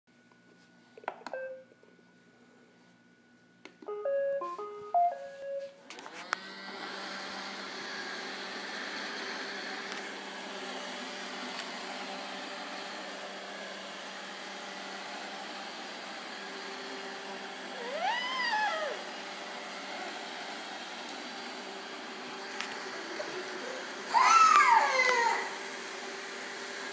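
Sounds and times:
robot vacuum beep: 1.3s - 1.6s, 3.9s - 5.8s
start-up tune: 3.8s - 5.9s
vacuum motor and brushes running: 5.2s - 26.9s.

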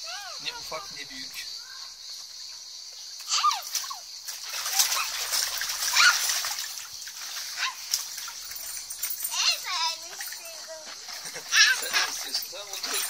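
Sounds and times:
water splashing in a pool: 3.2s - 13.0s.

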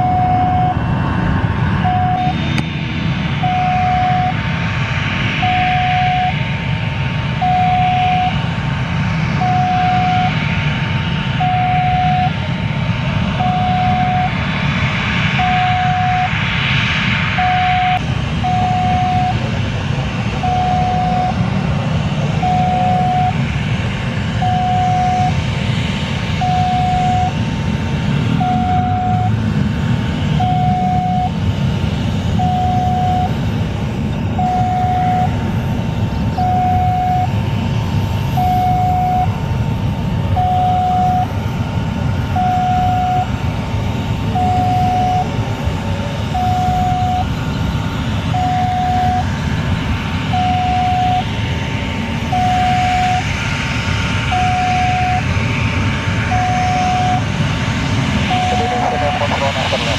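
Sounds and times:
two-tone beeping: 0.0s - 0.8s, 1.8s - 2.4s, 3.4s - 4.4s, 5.4s - 6.4s, 7.4s - 8.4s, 9.4s - 10.5s, 11.4s - 12.4s, 13.4s - 14.4s, 15.4s - 16.4s, 17.4s - 19.4s, 20.4s - 21.5s, 22.4s - 23.4s, 24.4s - 25.4s, 26.4s - 27.4s, 28.4s - 29.3s, 30.4s - 31.3s, 32.4s - 33.3s, 34.4s - 35.3s, 36.4s - 37.3s, 38.4s - 39.3s, 40.4s - 41.3s, 42.4s - 43.3s, 44.4s - 45.3s, 46.4s - 47.3s, 48.4s - 49.3s, 50.4s - 51.2s, 52.3s - 53.2s, 54.3s - 55.2s, 56.3s - 57.3s, 58.2s - 59.9s
jet engines running: 0.0s - 59.9s.

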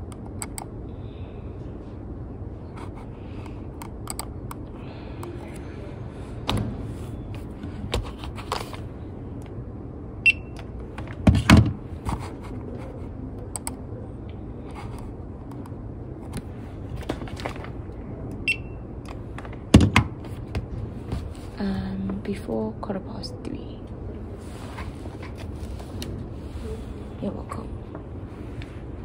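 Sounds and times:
barcode scanner beeps: 10.2s - 10.6s
books being handled: 20.2s - 21.6s.

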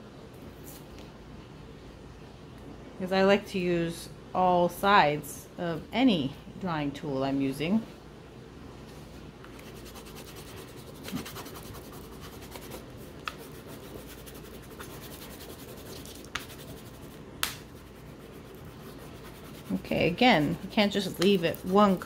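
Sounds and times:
crayon rubbing on paper: 9.6s - 17.2s, 17.8s - 22.0s.

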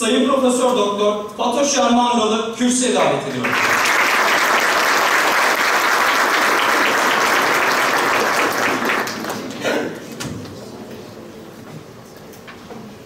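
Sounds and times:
audience applauding: 3.4s - 9.8s.

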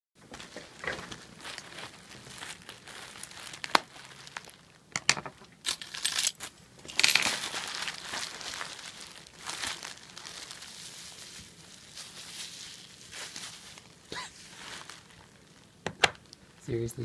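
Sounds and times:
bubble wrap crinkling: 0.3s - 17.0s.

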